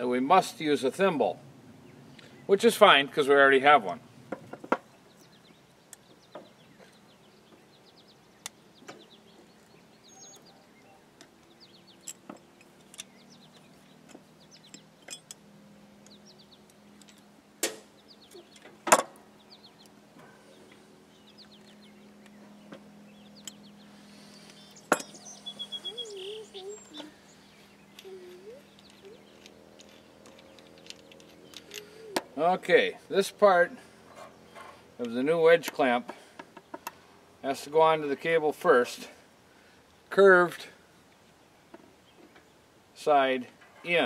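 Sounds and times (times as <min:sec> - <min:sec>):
metal hardware clicking and clinking: 0:11.2 - 0:15.4, 0:17.0 - 0:17.3, 0:24.5 - 0:25.2, 0:27.9 - 0:32.3.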